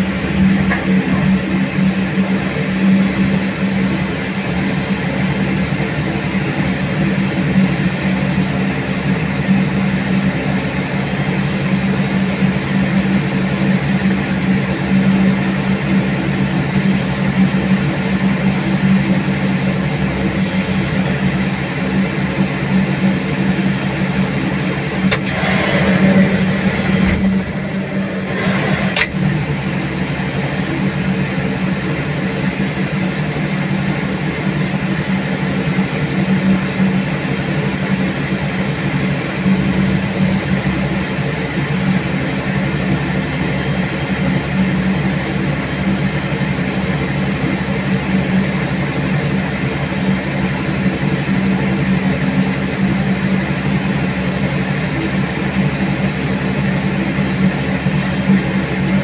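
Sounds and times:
airliner engine drone: 0:00.0 - 0:59.0.

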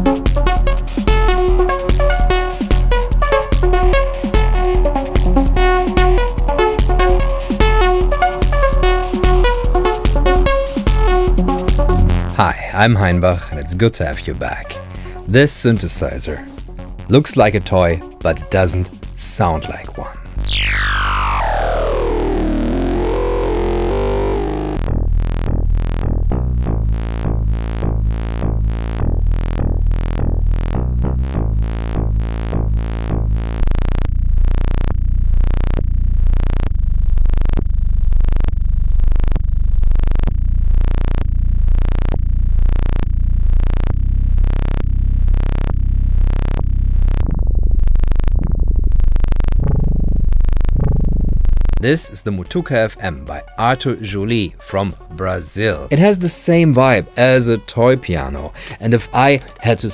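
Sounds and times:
synthesizer bass and lead pattern: 0:00.0 - 0:12.5, 0:18.1 - 0:59.9
synthesizer pitch sweeping down: 0:20.4 - 0:51.8.

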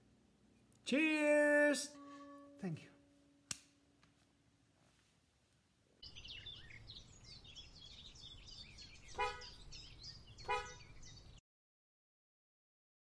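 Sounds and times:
car horn toots: 0:01.8 - 0:03.4, 0:09.2 - 0:09.5, 0:10.5 - 0:10.8
low rumble of traffic: 0:05.7 - 0:11.4
small birds chirping: 0:06.0 - 0:11.4.

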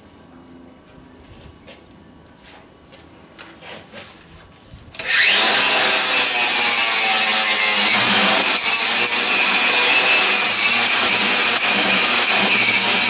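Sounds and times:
angle grinder grinding metal: 0:05.0 - 0:13.0.

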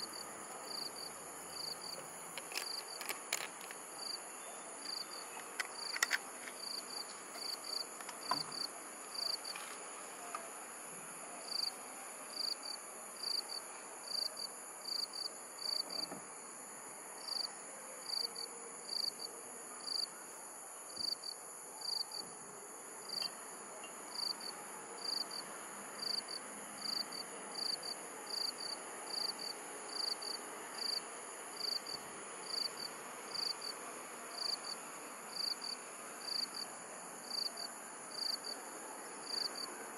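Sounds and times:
crickets chirping: 0:00.0 - 0:39.9
clicks and rustles: 0:01.9 - 0:03.8, 0:05.3 - 0:06.7.

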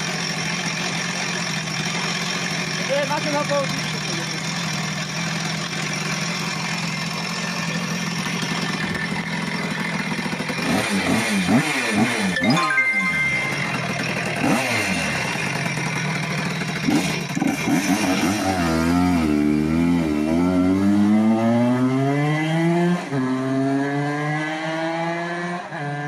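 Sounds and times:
moped engine revving: 0:00.0 - 0:12.5, 0:13.2 - 0:25.6.

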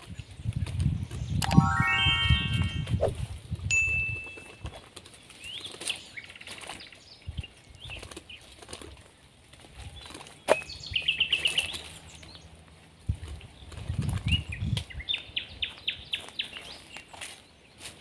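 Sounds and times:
small birds chirping: 0:04.2 - 0:18.0
dry leaves rustling: 0:04.3 - 0:14.2.

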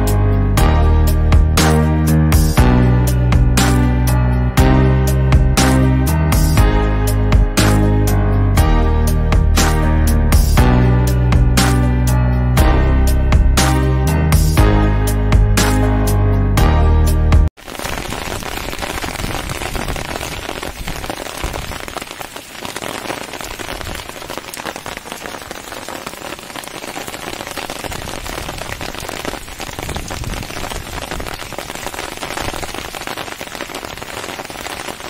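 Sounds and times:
steady rain falling: 0:17.6 - 0:35.0.

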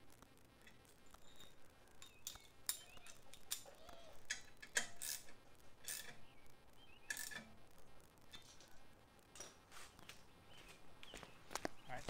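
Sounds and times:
metal clicks and scrapes: 0:00.6 - 0:06.3, 0:07.0 - 0:09.6.

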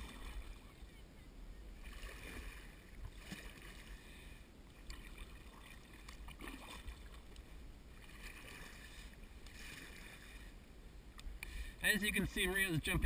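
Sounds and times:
paddle splashes and drips: 0:00.0 - 0:01.0, 0:01.8 - 0:10.6.

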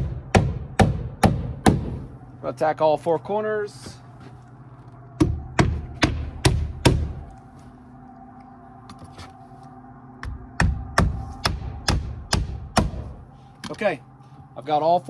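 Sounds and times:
hammer striking nails: 0:00.0 - 0:02.0, 0:05.2 - 0:07.1, 0:10.2 - 0:13.0.

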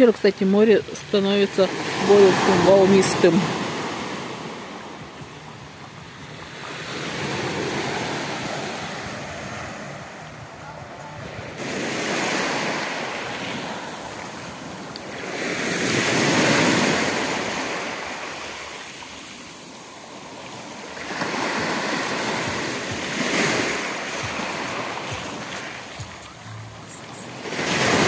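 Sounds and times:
waves breaking on pebble shore: 0:01.0 - 0:04.8, 0:06.5 - 0:10.0, 0:11.3 - 0:26.2, 0:27.2 - 0:28.0.

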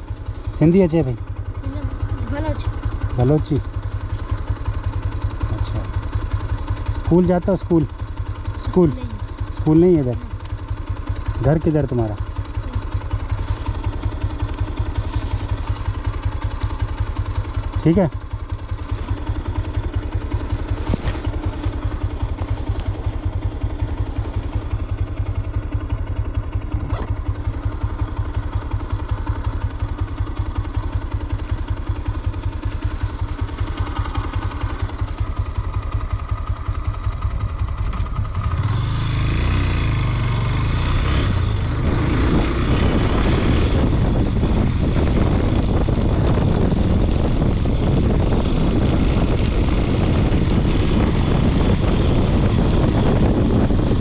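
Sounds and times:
motorcycle engine idling and pulling away: 0:00.0 - 0:54.0
wind noise: 0:41.1 - 0:54.0.

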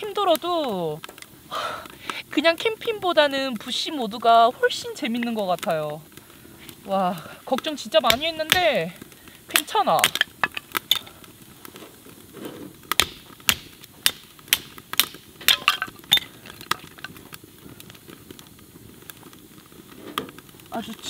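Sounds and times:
axe splitting firewood: 0:07.5 - 0:17.4.

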